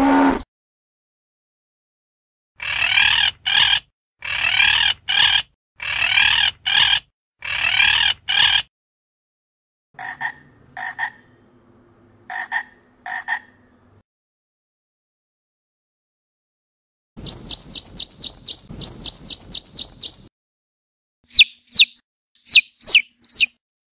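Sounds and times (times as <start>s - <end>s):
parrot squawking: 2.6s - 8.7s, 21.3s - 23.6s.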